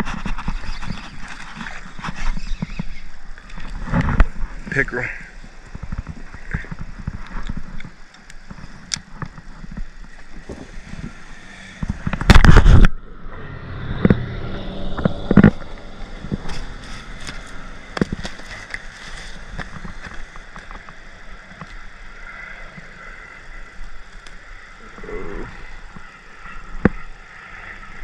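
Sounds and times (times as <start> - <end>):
knocks and rattles against kayak hull: 5.5 - 13.0, 15.0 - 21.7
loud rush of noise: 8.5 - 28.0.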